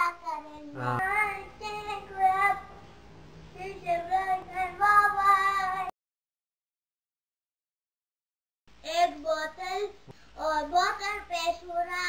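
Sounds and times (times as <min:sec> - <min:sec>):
child singing: 0:00.0 - 0:02.7, 0:03.6 - 0:05.9, 0:08.8 - 0:12.0.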